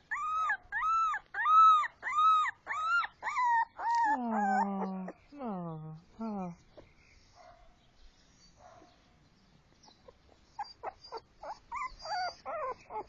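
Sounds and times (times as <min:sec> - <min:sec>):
puppy whimpering: 0:00.0 - 0:05.2, 0:10.0 - 0:13.0.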